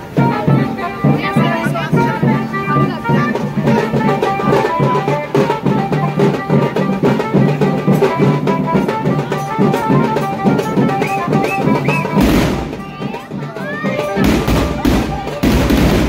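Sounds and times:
high note melody: 0.0s - 15.8s
fast dense drumming: 11.9s - 16.0s.

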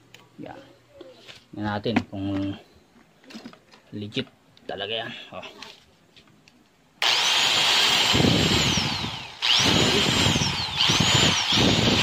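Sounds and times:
angle grinder motor whining: 7.0s - 12.0s.

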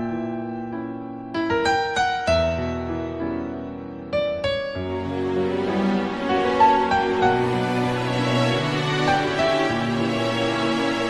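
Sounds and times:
slow solo piano: 0.0s - 5.1s.

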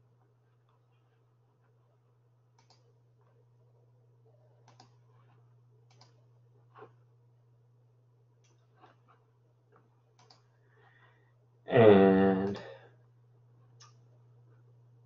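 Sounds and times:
low steady hum: 0.0s - 15.0s
computer mouse clicks: 2.5s - 2.9s, 4.6s - 5.0s, 5.9s - 6.2s, 10.2s - 10.5s.

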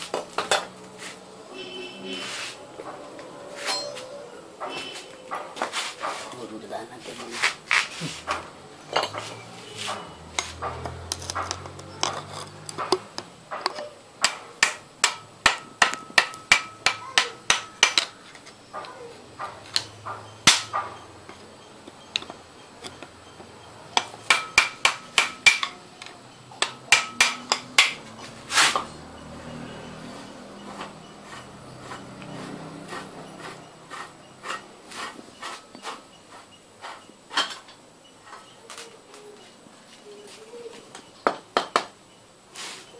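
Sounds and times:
hammer striking metal: 9.0s - 18.2s, 19.4s - 23.0s, 23.9s - 29.0s.

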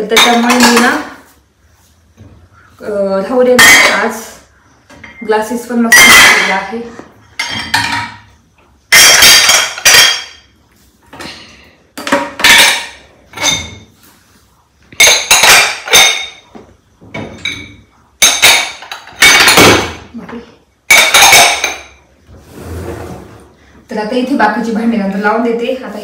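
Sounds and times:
glass dishes clinking and clattering: 0.0s - 1.2s, 4.9s - 5.3s, 7.3s - 14.0s, 14.9s - 20.2s, 20.9s - 22.0s.

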